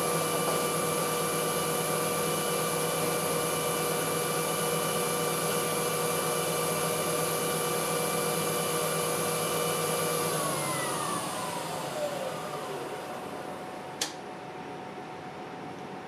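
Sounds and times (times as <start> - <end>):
lathe spindle whining: 2.1 - 13.9.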